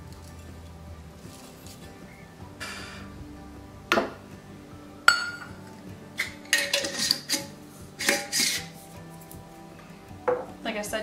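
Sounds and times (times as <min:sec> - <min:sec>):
metal cup clinking glass jars: 0:05.1 - 0:05.5, 0:06.2 - 0:08.7.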